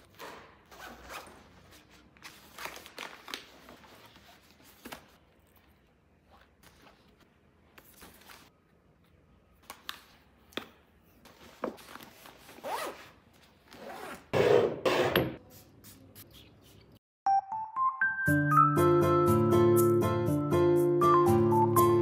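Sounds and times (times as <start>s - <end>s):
backpack zipper being pulled: 12.6s - 13.1s.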